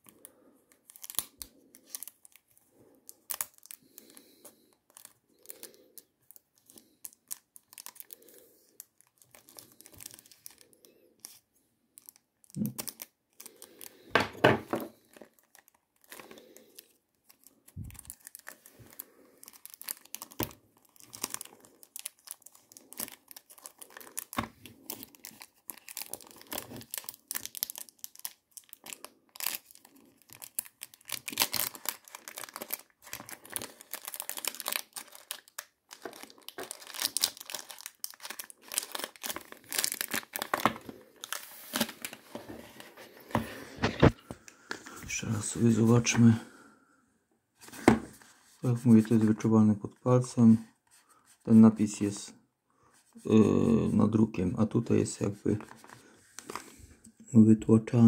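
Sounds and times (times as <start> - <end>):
plastic film wrap crinkling: 0.8 - 44.3, 55.2 - 57.0.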